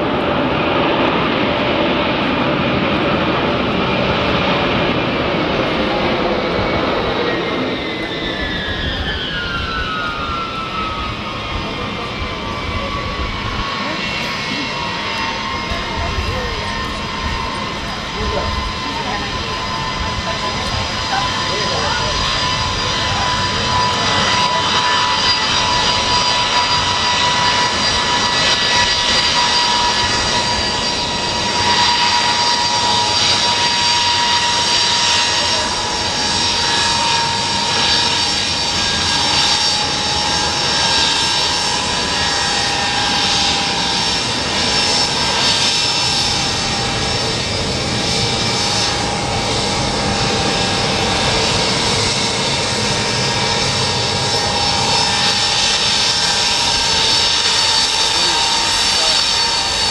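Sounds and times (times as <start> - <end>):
jet engine whine: 0.0 - 59.9
rush of jet noise: 0.0 - 59.9.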